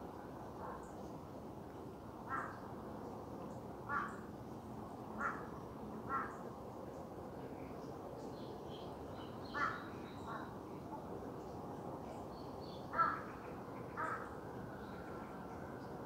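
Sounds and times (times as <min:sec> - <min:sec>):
steady background noise: 0:00.0 - 0:16.0
crow cawing: 0:02.3 - 0:02.6, 0:03.9 - 0:04.2, 0:05.2 - 0:05.5, 0:06.1 - 0:06.3, 0:09.5 - 0:09.8, 0:12.9 - 0:13.3, 0:14.0 - 0:14.3.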